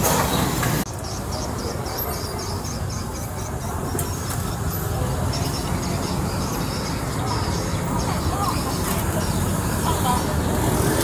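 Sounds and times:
traffic rumble: 0.0s - 11.0s.

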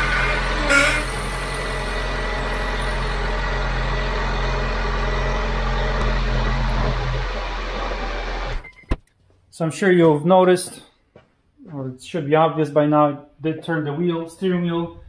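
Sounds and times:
car engine idling: 0.0s - 8.6s.

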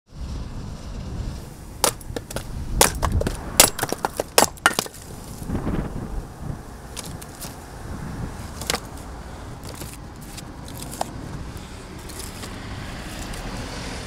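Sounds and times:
hard objects knocking and clacking: 1.8s - 5.0s.

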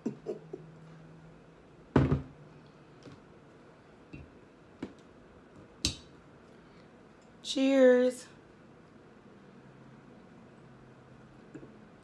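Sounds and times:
thunk: 2.0s - 2.3s.

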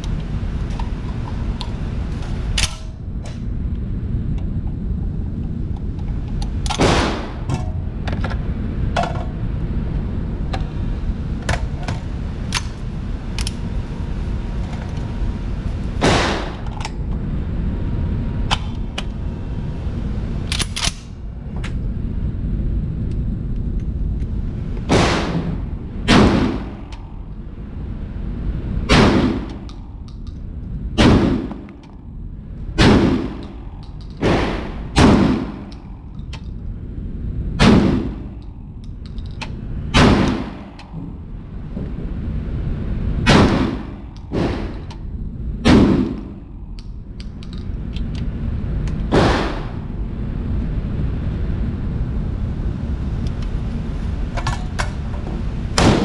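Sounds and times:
steady low rumble: 0.0s - 56.0s
gunshots indoors: 6.7s - 7.8s, 16.0s - 16.8s, 24.8s - 27.2s, 28.8s - 29.9s, 30.9s - 32.0s, 32.8s - 36.0s, 37.5s - 38.6s, 39.9s - 41.1s, 43.2s - 45.0s, 45.6s - 46.7s, 49.1s - 49.9s, 55.8s - 56.0s
metallic gun handling clicks: 38.4s - 39.6s, 46.8s - 48.2s.

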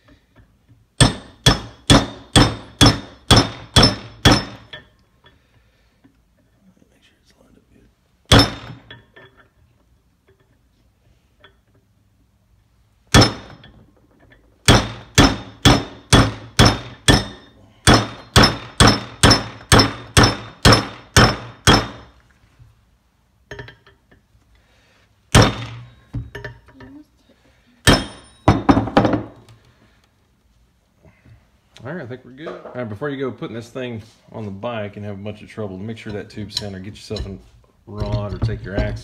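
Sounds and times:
hammer blows ringing on metal: 1.0s - 4.7s, 8.3s - 8.9s, 13.1s - 13.6s, 14.7s - 22.1s.

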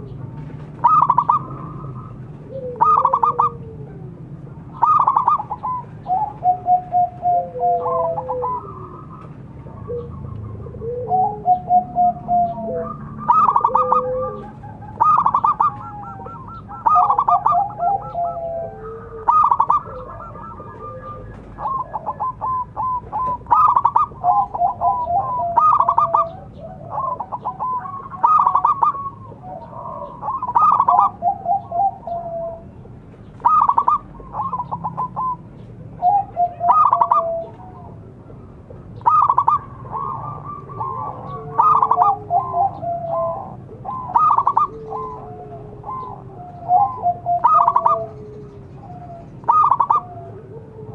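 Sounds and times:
dove cooing: 0.0s - 50.9s.

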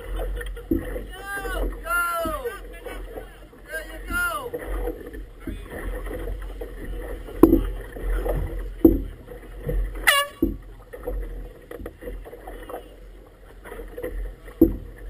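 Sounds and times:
low rumble of water and wind: 0.0s - 15.0s
water slapping boat hull: 0.0s - 15.0s.

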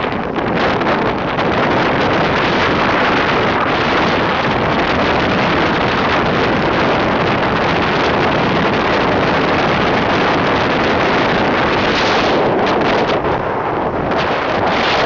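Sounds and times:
road noise: 0.0s - 15.0s
wind rushing on microphone: 0.0s - 15.0s.

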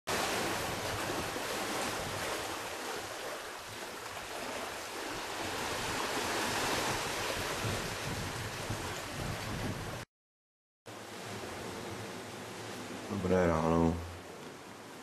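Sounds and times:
wind buffeting microphone: 0.1s - 4.4s, 5.1s - 10.0s
small waves washing onto sand: 0.1s - 10.1s, 10.9s - 15.0s.

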